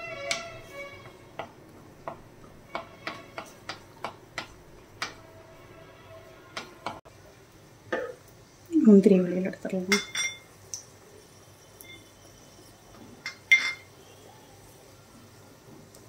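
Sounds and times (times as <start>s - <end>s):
wooden spatula scraping metal pan: 2.7s - 4.0s.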